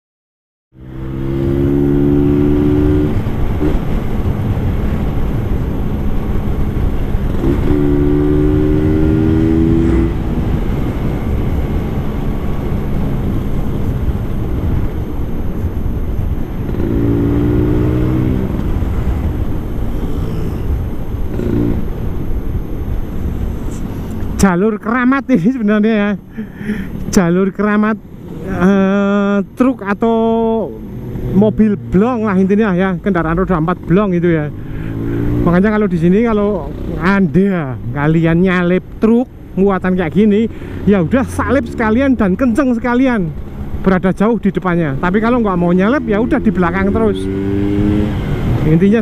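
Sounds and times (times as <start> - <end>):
heavy rushing noise: 1.0 - 25.1, 25.7 - 49.0
scooter engine running: 1.9 - 24.3.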